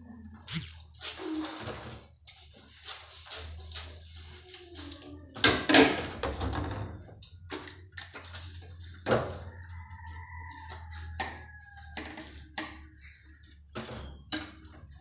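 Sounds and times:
dishes clinking and knocking: 13.7s - 15.0s.

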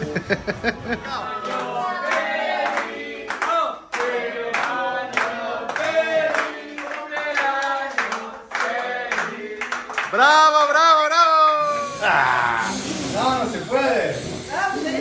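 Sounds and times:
group singing a birthday song: 0.7s - 10.7s
people clapping in time: 1.4s - 10.9s.

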